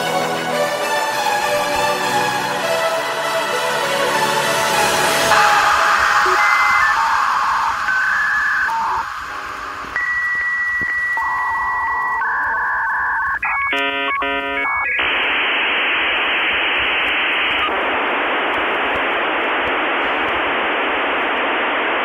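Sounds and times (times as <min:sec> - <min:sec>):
modem hiss: 0:04.4 - 0:22.0
dial-up modem tones: 0:05.3 - 0:22.0.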